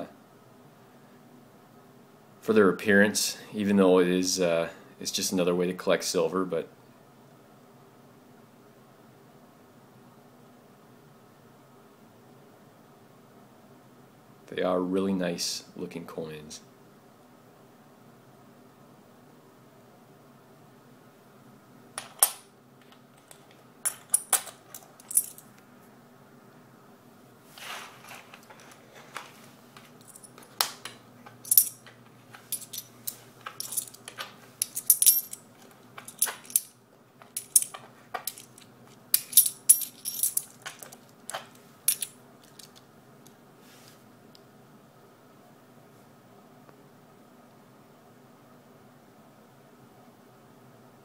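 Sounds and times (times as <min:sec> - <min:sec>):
coins clinking: 0:23.2 - 0:25.4, 0:30.0 - 0:42.8.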